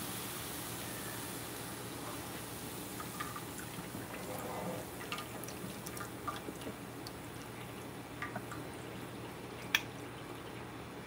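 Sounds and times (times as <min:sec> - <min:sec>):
frying oil sizzling: 0:00.0 - 0:10.8
small pops and drips: 0:02.1 - 0:10.7.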